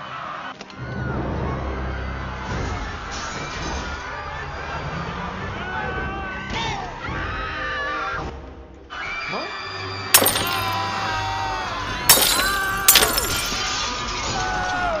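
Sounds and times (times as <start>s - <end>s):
sharp crashes like glass: 10.2s - 11.0s, 12.1s - 13.7s.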